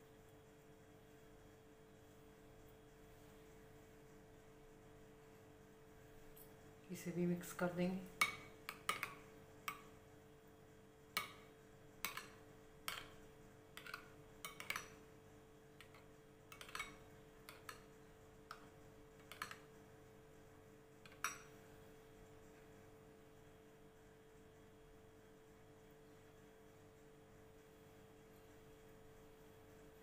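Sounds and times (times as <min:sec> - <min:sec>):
faint steady hum: 0:00.0 - 0:30.0
spoon clinking against bowl: 0:08.2 - 0:09.9, 0:12.0 - 0:13.2, 0:13.8 - 0:15.0, 0:15.8 - 0:17.9, 0:21.1 - 0:21.5.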